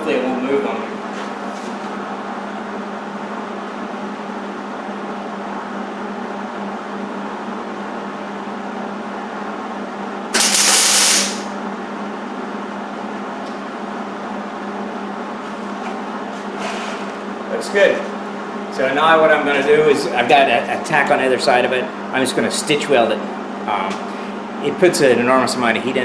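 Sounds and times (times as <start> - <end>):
steady welder hum: 9.1 - 26.0
welding arc burst: 10.3 - 11.5.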